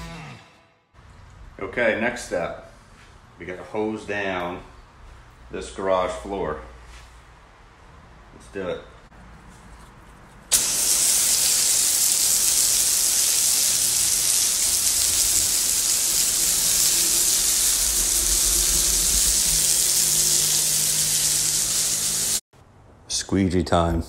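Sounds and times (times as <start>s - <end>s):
hose spray hissing on concrete: 10.5s - 22.4s.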